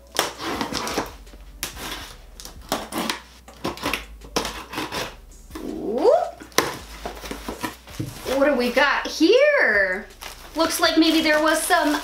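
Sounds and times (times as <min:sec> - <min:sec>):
scissors slicing packing tape: 0:00.0 - 0:05.7
cardboard flaps ripping and rustling: 0:00.1 - 0:04.0, 0:10.1 - 0:12.0.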